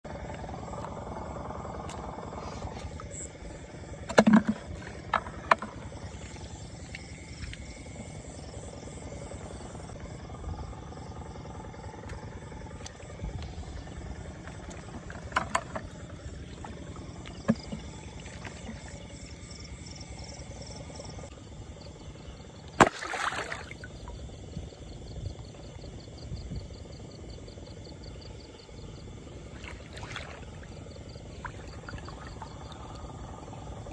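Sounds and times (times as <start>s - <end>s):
insects and frogs chorus: 0.0s - 33.9s
water knocks and splashes: 4.0s - 7.6s, 14.4s - 19.1s, 22.8s - 23.9s, 29.6s - 33.1s.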